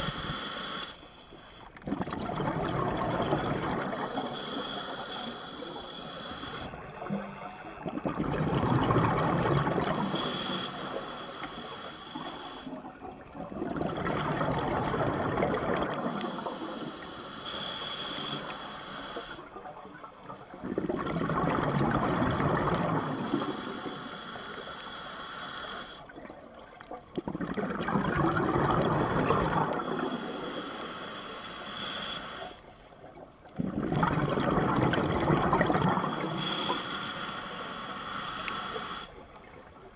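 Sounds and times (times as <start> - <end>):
diver breathing through regulator: 0.0 - 1.8, 3.0 - 7.8, 9.2 - 12.9, 15.8 - 19.5, 22.6 - 26.1, 28.8 - 32.6, 35.1 - 39.3
exhaled bubbles rushing: 1.8 - 4.2, 7.8 - 10.1, 13.4 - 16.2, 20.6 - 23.3, 27.2 - 30.0, 33.6 - 36.4.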